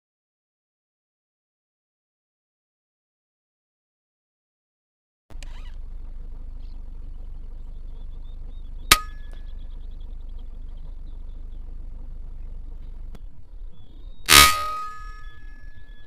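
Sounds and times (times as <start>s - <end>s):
steady low rumble: 5.3s - 16.0s.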